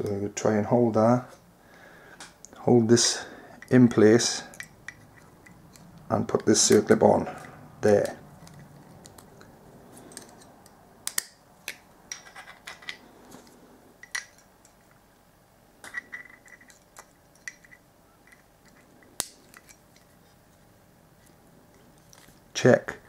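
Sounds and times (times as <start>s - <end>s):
circlip pliers clicking and scraping: 10.1s - 13.0s, 15.9s - 20.2s.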